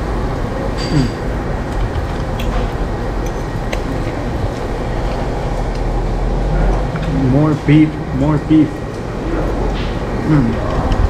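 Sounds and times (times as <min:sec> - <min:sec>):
restaurant background noise: 0:00.0 - 0:11.0
cutlery clinking on a plate: 0:00.8 - 0:01.2.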